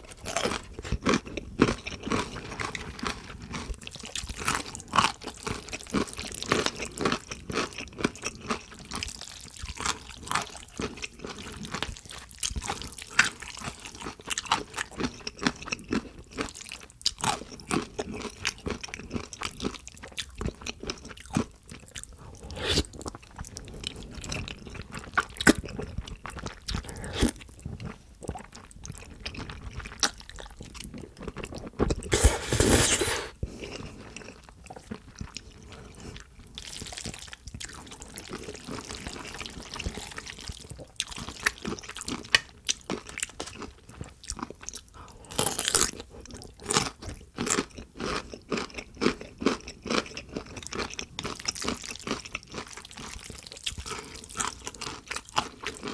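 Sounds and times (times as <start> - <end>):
slurping noodles: 22.3 - 23.1, 26.7 - 27.4, 32.0 - 33.4.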